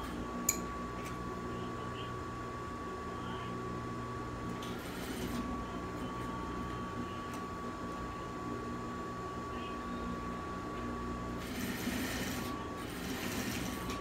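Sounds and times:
sewing machine motor humming: 11.4 - 14.0.

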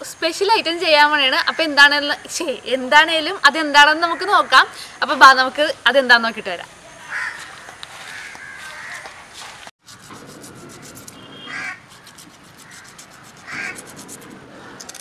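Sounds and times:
crow cawing: 7.0 - 9.2, 10.6 - 13.8
knife scraping fish scales: 9.9 - 15.0.

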